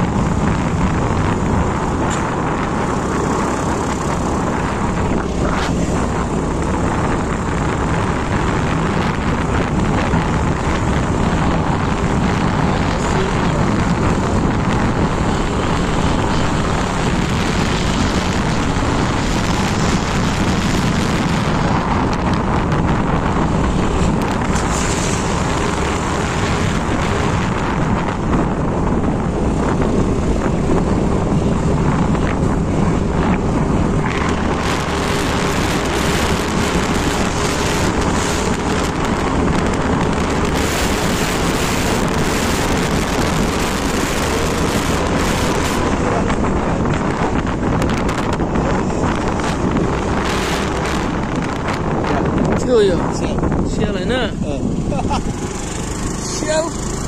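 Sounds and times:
scooter engine hum: 0.0s - 52.4s, 54.3s - 57.0s
road noise: 0.0s - 57.0s
wind rushing over microphone: 0.0s - 57.0s.

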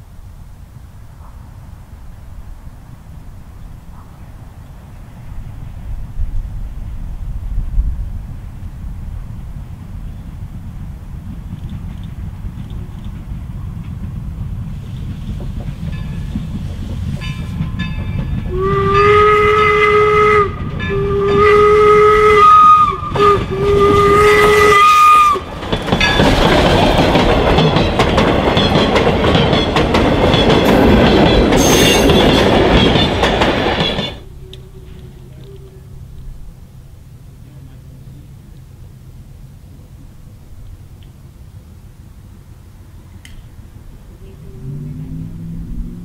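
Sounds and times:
steam locomotive rumble: 0.0s - 46.0s
train passing with rush and clatter: 0.0s - 46.0s
steam whistle blasts: 18.5s - 25.4s, 31.6s - 32.2s.

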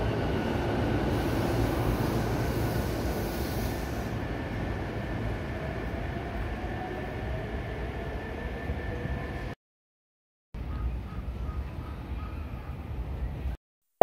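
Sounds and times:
electric train rumbling: 0.0s - 9.6s
high hiss: 1.1s - 4.2s.

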